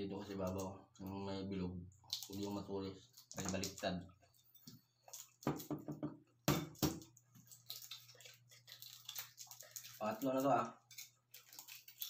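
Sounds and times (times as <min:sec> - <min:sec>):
egg shell cracking: 0:02.1 - 0:02.5, 0:06.5 - 0:12.0
small shell crackles: 0:07.4 - 0:12.0.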